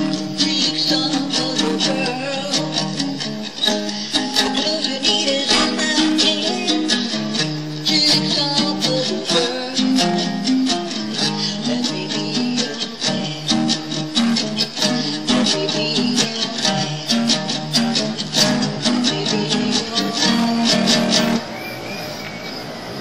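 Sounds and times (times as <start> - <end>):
strummed guitar music: 0.0 - 21.6.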